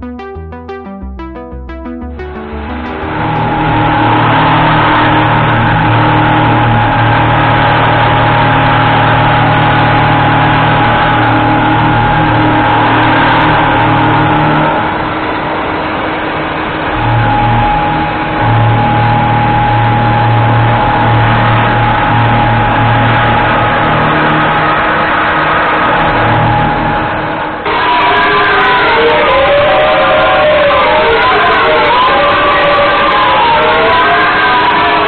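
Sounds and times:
cnc machine milling metal: 0:16.8 - 0:35.0.

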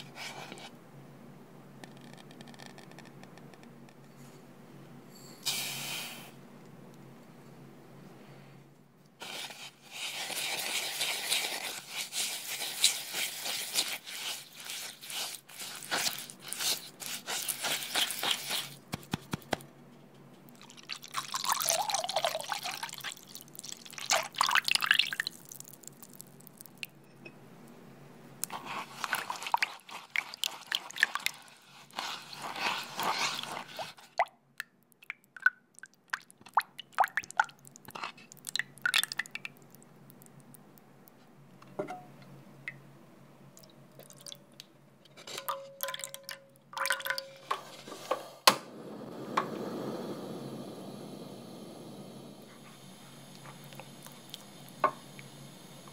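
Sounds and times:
liquid pouring and splashing: 0:09.2 - 0:18.8, 0:20.5 - 0:27.0, 0:28.4 - 0:34.3, 0:35.0 - 0:40.6, 0:43.6 - 0:44.7, 0:45.4 - 0:47.8
small drips: 0:20.5 - 0:27.1, 0:28.4 - 0:41.3, 0:42.6 - 0:42.8, 0:43.5 - 0:44.8, 0:45.4 - 0:47.5
liquid sloshing: 0:28.4 - 0:34.3
spatula scraping wooden bowl: 0:31.4 - 0:34.0.

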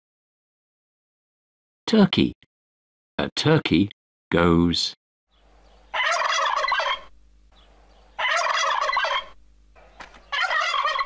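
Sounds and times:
turkey gobbling: 0:05.8 - 0:11.0.

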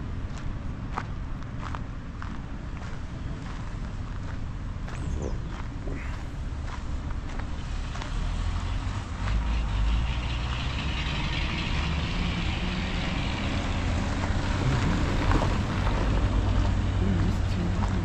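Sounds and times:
car engine rumble: 0:00.0 - 0:18.0
tyres on loose gravel: 0:09.2 - 0:18.0.

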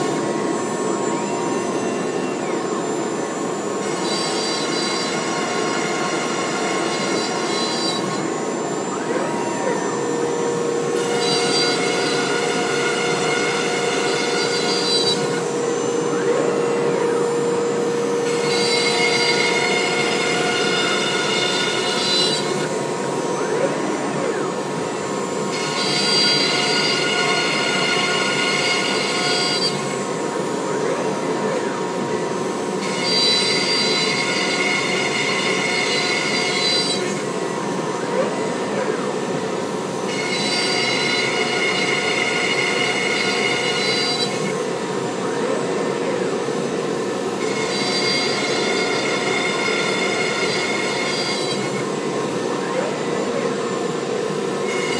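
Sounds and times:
cnc router humming: 0:00.0 - 0:54.9
router bit whining: 0:00.0 - 0:54.9.

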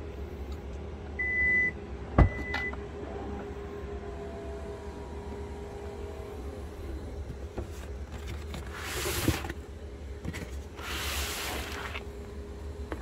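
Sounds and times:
hand brushing cardboard box: 0:07.7 - 0:09.6, 0:10.4 - 0:12.1.

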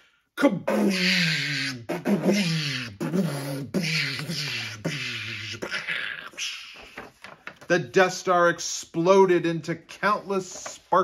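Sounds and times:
man making whooshing vocal effects: 0:00.4 - 0:06.8.

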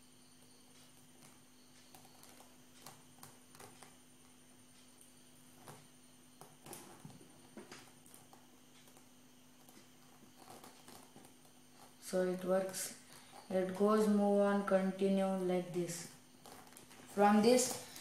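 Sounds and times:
steady low hum: 0:00.0 - 0:18.0
faint clicks and taps: 0:00.4 - 0:12.1.

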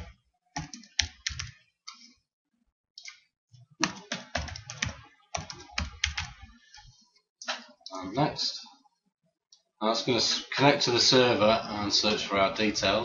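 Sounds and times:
keyboard typing: 0:00.0 - 0:02.0, 0:03.8 - 0:06.6.

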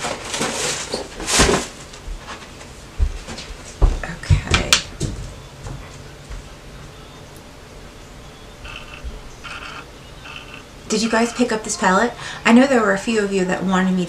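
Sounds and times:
knocks and bumps of handling: 0:03.0 - 0:06.4.

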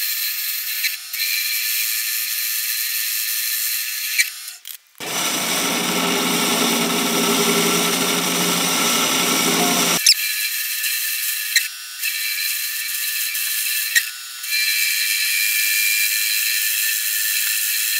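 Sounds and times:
bench lathe running: 0:05.0 - 0:10.0.

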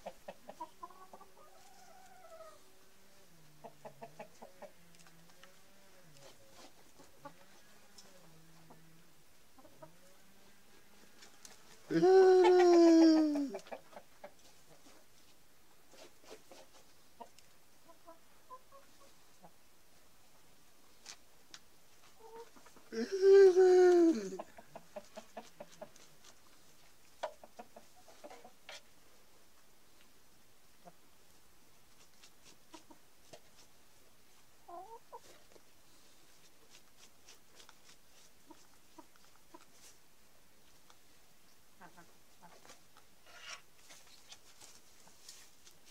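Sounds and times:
hens clucking: 0:00.0 - 0:15.2, 0:15.9 - 0:19.7, 0:22.0 - 0:28.9, 0:32.7 - 0:33.6, 0:34.6 - 0:35.6, 0:41.7 - 0:44.0
light ticks and rustles: 0:40.6 - 0:41.1, 0:41.9 - 0:45.9.

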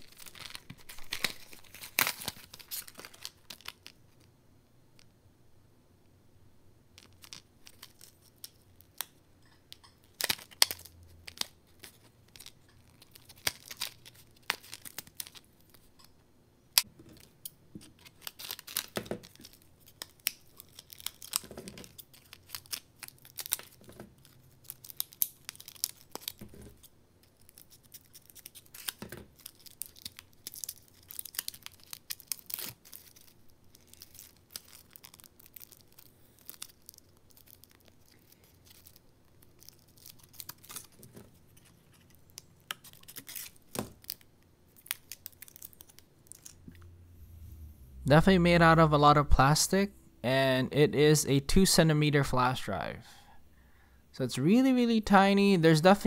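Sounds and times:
stiff plastic crinkling: 0:00.0 - 0:04.3, 0:07.0 - 0:16.0, 0:16.8 - 0:46.8.

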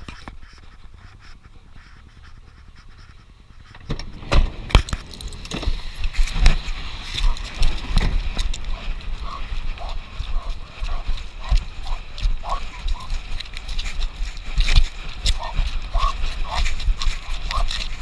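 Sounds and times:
low rumble inside car: 0:00.0 - 0:14.2.

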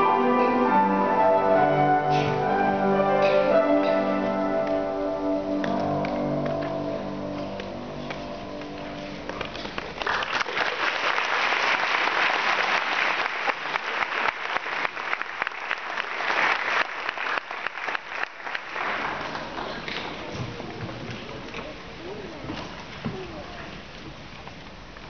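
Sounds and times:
piano notes: 0:00.0 - 0:10.0
audience applauding: 0:09.3 - 0:20.3.

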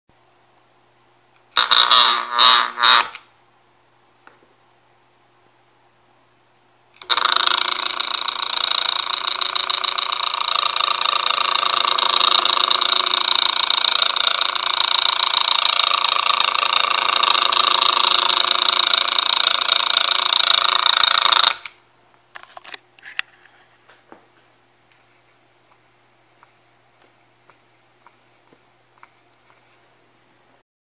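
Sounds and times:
fan motor rattling: 0:07.0 - 0:21.8.

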